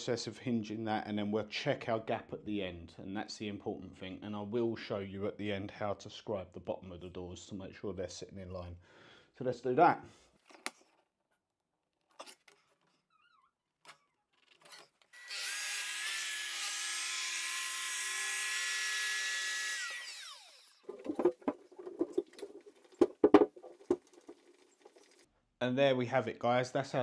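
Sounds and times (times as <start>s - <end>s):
electric saw cutting wood: 15.1s - 20.9s.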